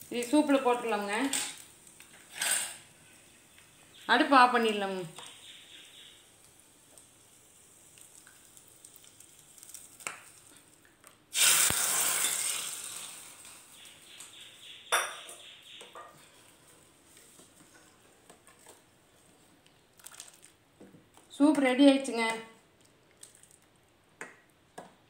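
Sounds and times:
fried bread sizzling in soup: 0.0s - 15.1s.

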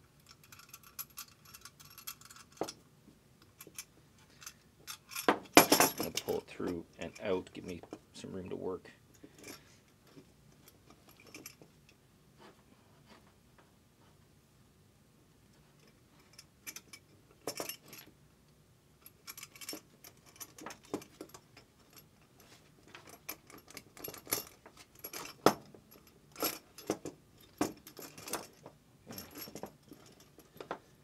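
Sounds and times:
metallic clicks and clinks: 0.0s - 2.8s, 3.4s - 8.0s, 9.1s - 12.0s, 15.8s - 18.1s, 19.0s - 30.7s.

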